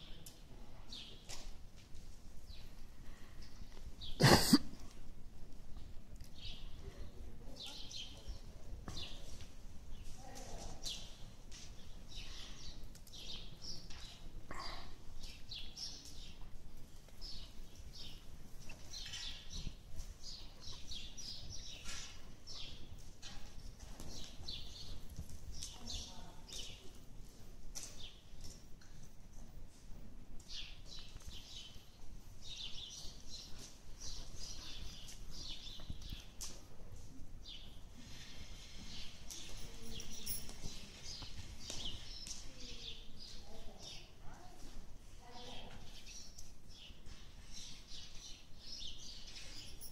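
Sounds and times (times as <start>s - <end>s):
small birds chirping: 0.0s - 1.6s, 2.4s - 4.9s, 5.7s - 27.1s, 30.3s - 49.9s
horse trotting on sand: 15.2s - 43.4s.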